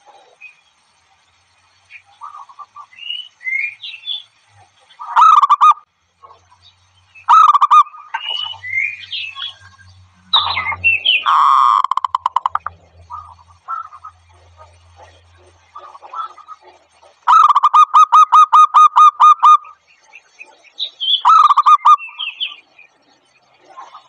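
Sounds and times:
doves cooing: 0:04.6 - 0:06.6, 0:07.3 - 0:22.6
higher chirping notes: 0:07.2 - 0:14.2, 0:17.3 - 0:19.8.

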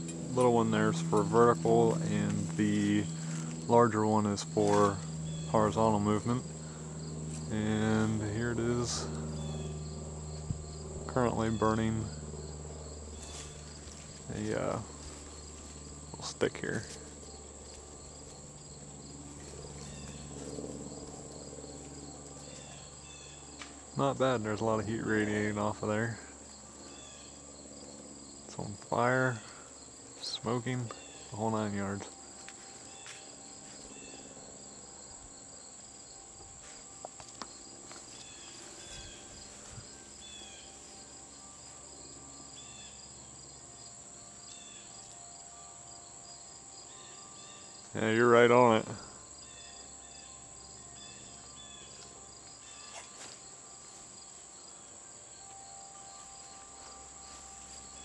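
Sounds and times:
high-pitched insect trill: 0:00.0 - 0:58.0
insect chirping: 0:00.0 - 0:58.0.

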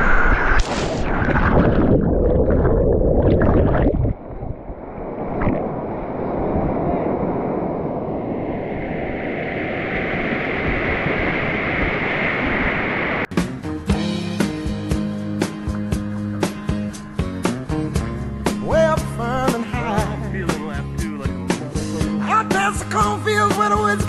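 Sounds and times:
whitewater crashing and splashing: 0:00.1 - 0:07.7.

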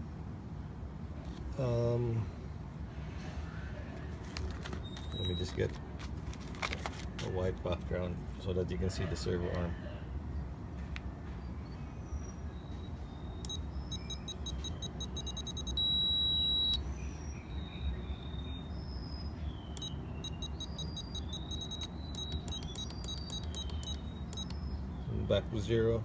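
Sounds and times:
short transmitter beeps: 0:13.3 - 0:16.8, 0:19.7 - 0:24.8
long beep: 0:13.4 - 0:16.8, 0:19.7 - 0:24.6.

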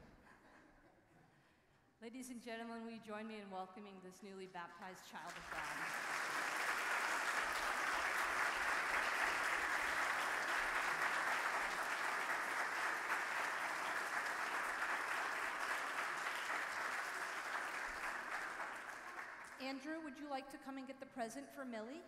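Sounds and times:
crowd applauding: 0:05.3 - 0:19.6.

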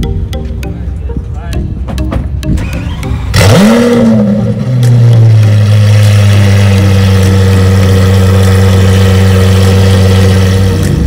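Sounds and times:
sports car engine idling: 0:02.6 - 0:11.0.

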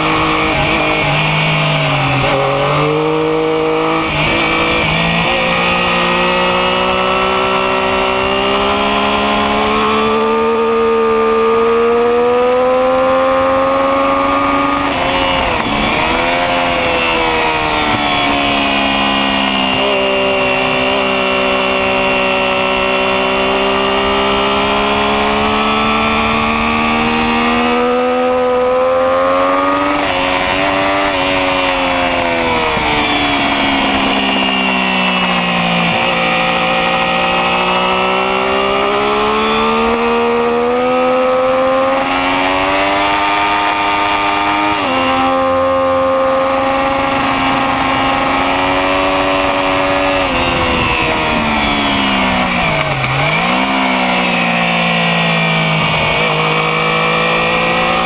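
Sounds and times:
motorcycle engine revving: 0:00.0 - 0:58.0
wind noise: 0:00.0 - 0:58.0.

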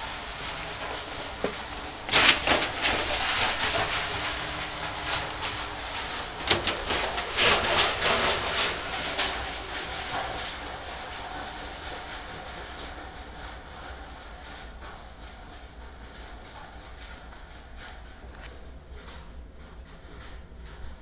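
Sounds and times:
newspapers rattling down a chute: 0:00.0 - 0:14.0.

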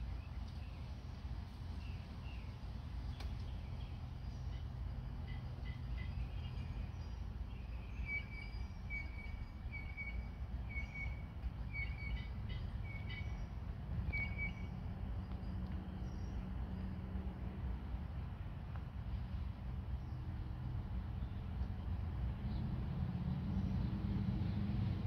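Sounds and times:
low outdoor rumble: 0:00.0 - 0:25.0
small bird high calls: 0:03.2 - 0:14.8.

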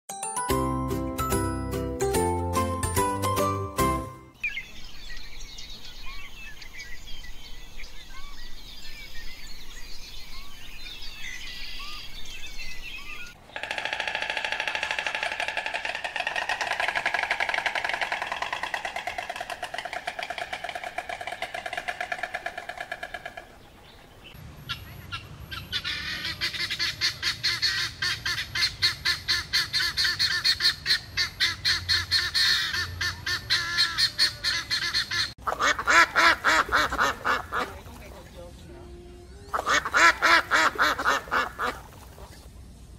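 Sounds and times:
small birds chirping: 0:04.3 - 0:13.7, 0:18.1 - 0:26.9
rapid pulsed animal calls: 0:13.4 - 0:24.1
dense chorus of animal calls: 0:13.5 - 0:24.0.

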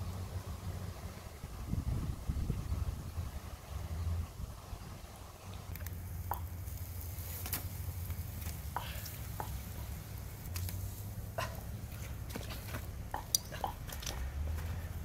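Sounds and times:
steady low rumble: 0:00.0 - 0:15.0
crackles and pops of grilling: 0:04.8 - 0:15.0.

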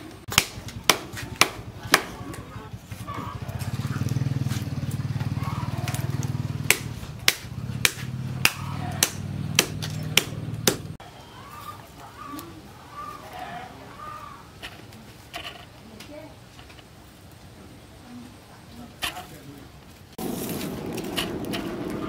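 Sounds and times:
hatchet chopping kindling: 0:00.3 - 0:02.5, 0:04.6 - 0:11.0.

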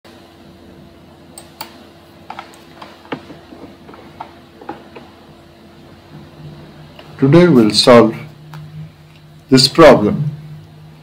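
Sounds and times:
faint steady hum: 0:00.1 - 0:11.0.

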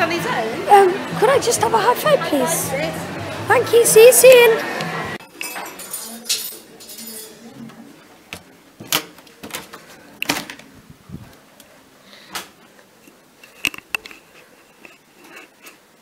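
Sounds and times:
camera handling clicks and knocks: 0:13.6 - 0:14.2.

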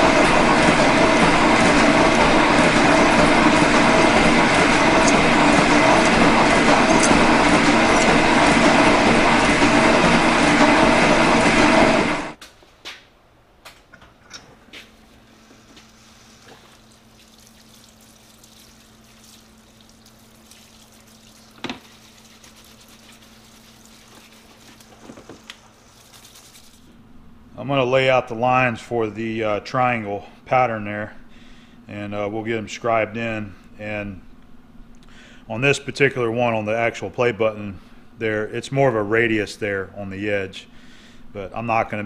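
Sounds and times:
solvent running from nozzle: 0:00.0 - 0:12.3, 0:15.9 - 0:26.9
metal shaper cutting: 0:00.0 - 0:12.4
pump humming: 0:00.0 - 0:12.4, 0:15.4 - 0:28.8.

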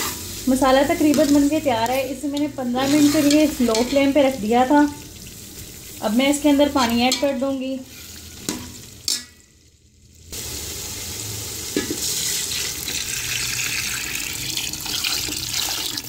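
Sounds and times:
water pouring into a pot: 0:10.4 - 0:16.0.

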